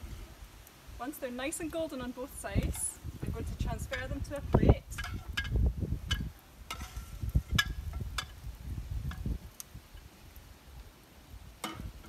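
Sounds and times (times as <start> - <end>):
metal spatula tapping a frying pan: 3.8 - 4.3, 4.9 - 8.4.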